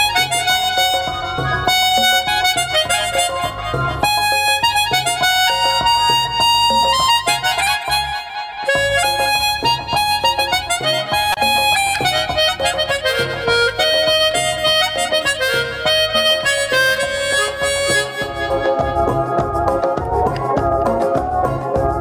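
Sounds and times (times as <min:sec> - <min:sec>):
harmonica melody: 0:00.0 - 0:22.0
instrumental backing music: 0:00.0 - 0:22.0.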